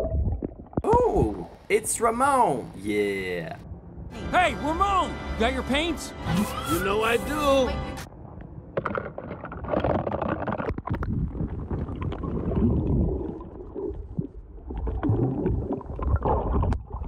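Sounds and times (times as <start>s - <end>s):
water sloshing and gurgling: 0.0s - 1.7s, 8.1s - 17.0s.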